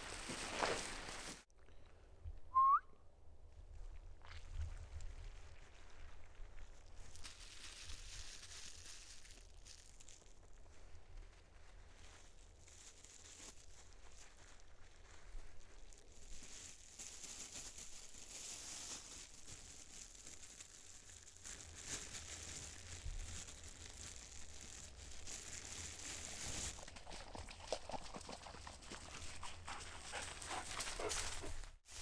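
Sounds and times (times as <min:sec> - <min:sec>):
dog steps rustling vegetation: 0:00.0 - 0:01.4, 0:05.0 - 0:32.0
dog panting: 0:29.0 - 0:31.7.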